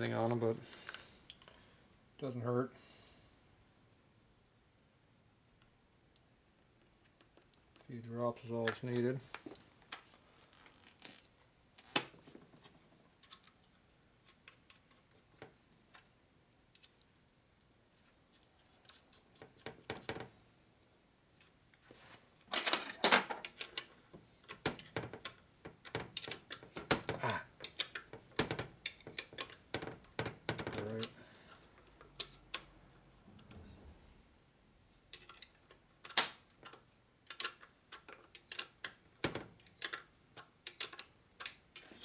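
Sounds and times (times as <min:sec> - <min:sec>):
metal parts clinking on workbench: 0:22.5 - 0:23.9
tools clattering: 0:22.5 - 0:23.9.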